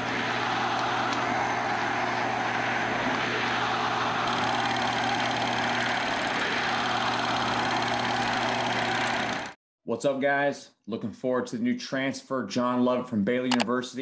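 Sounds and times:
film projector running: 0.0s - 9.6s.

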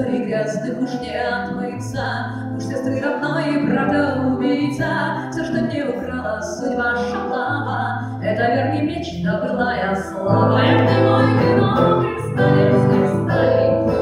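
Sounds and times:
amplified guitar: 0.0s - 14.0s
woman singing: 0.0s - 14.0s
low bass notes: 10.2s - 14.0s.

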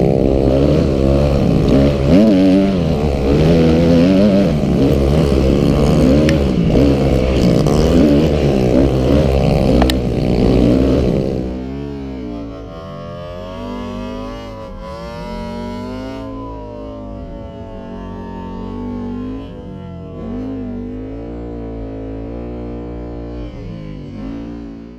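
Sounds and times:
dirt bike engine revving: 0.0s - 24.9s.

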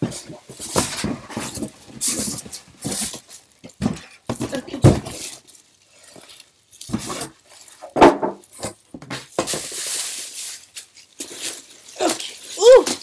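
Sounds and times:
plastic crinkling: 0.1s - 13.0s
appliance knocks and clatters: 7.9s - 9.5s.

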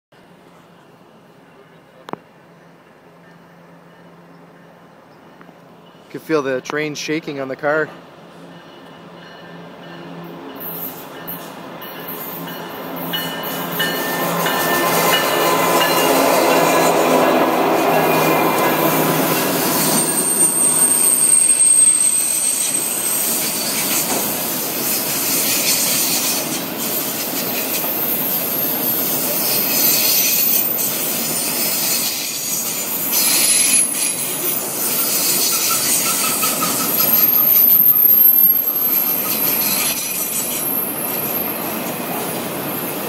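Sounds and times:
diesel locomotive engine droning: 7.2s - 43.0s
train cars rumbling and clattering: 7.8s - 43.0s
wheel squeal: 19.4s - 43.0s.

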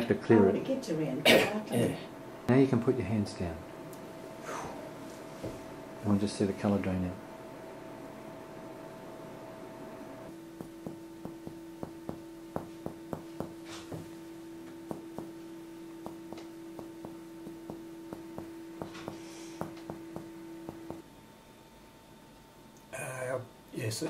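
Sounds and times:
steady hum: 0.0s - 24.0s
dull finger taps on chest: 10.6s - 14.1s, 14.9s - 15.4s, 16.0s - 21.0s.

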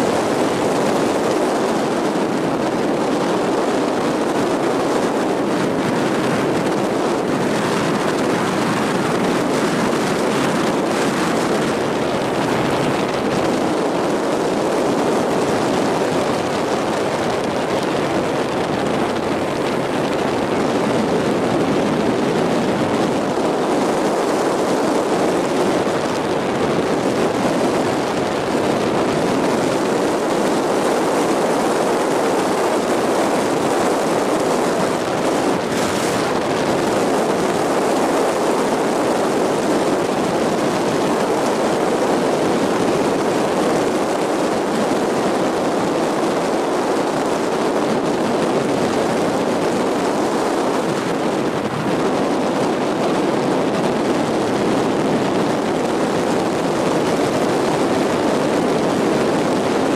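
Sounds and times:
boat engine drone: 0.0s - 59.9s
water rushing in wake: 0.0s - 59.9s
wind: 0.0s - 59.9s.

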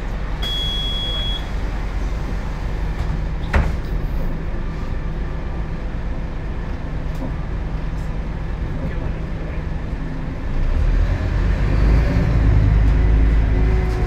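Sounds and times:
diesel bus engine idling: 0.0s - 10.6s
short high beep: 0.4s - 1.5s.

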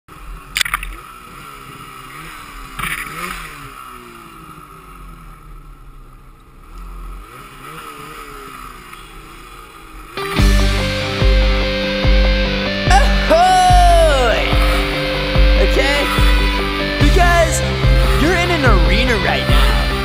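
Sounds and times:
snowmobile engine revving: 0.1s - 5.5s, 6.7s - 20.0s
music: 10.2s - 20.0s.

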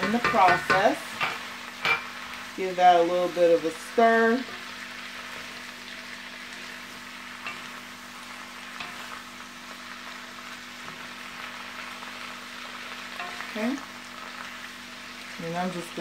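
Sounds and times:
spoon tapping a pan: 0.0s - 2.2s, 13.2s - 13.5s
food sizzling in a wok: 0.0s - 16.0s.

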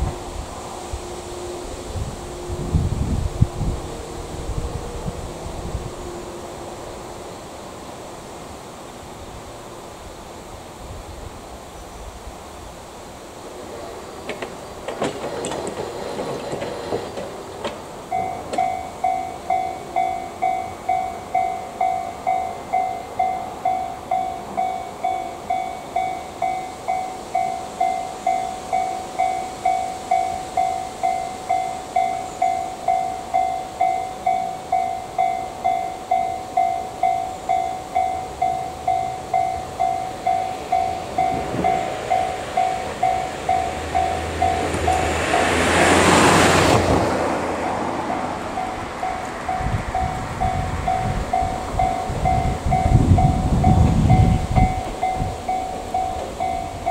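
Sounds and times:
electric train running: 12.6s - 56.9s
level crossing warning bell dinging: 14.3s - 56.9s.

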